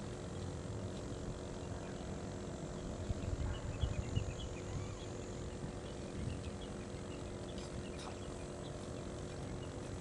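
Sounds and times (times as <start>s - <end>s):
low hum: 0.0s - 10.0s
faint high chirps: 2.7s - 9.9s.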